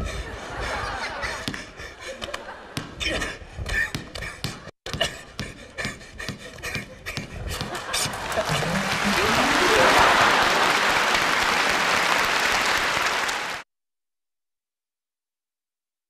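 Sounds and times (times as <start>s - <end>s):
audience applauding: 7.8s - 13.6s
crowd shouting: 8.4s - 11.1s.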